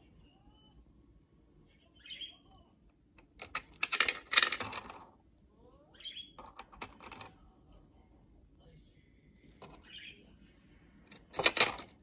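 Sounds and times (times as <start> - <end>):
budgerigar chirping: 1.8 - 2.5, 6.0 - 6.4.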